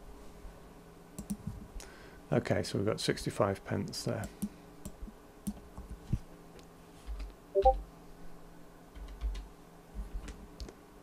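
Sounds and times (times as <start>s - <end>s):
keyboard typing: 1.2s - 1.5s, 9.0s - 9.4s.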